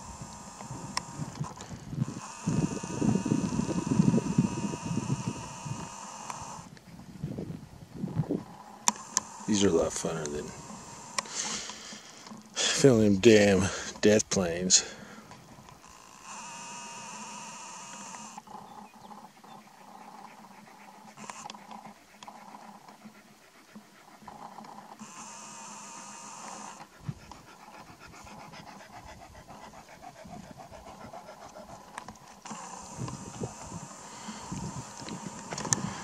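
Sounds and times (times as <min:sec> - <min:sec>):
dog panting: 0:18.0 - 0:36.0.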